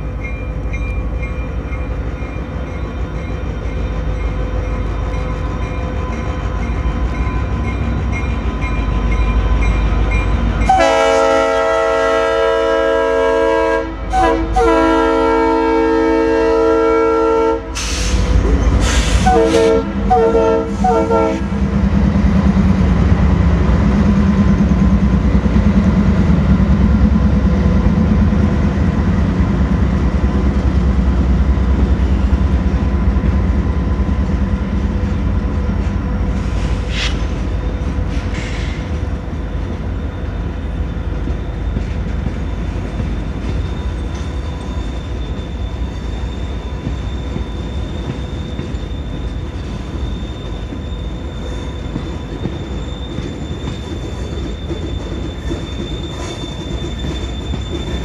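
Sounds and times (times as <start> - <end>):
train rumbling past: 0.0 - 58.0
locomotive horn chord: 10.6 - 17.8, 19.2 - 21.6
train wheels clickety-clack: 17.7 - 58.0.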